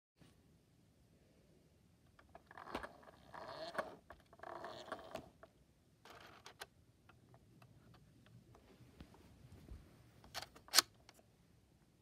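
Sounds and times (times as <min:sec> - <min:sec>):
handling rustles and clicks: 0:02.1 - 0:11.3.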